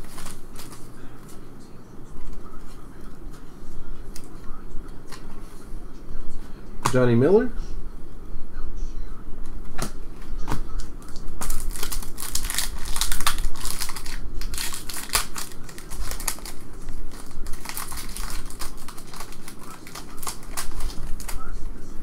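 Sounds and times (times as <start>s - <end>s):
foil wrapper crinkling and tearing: 0.0s - 0.8s, 11.0s - 21.6s.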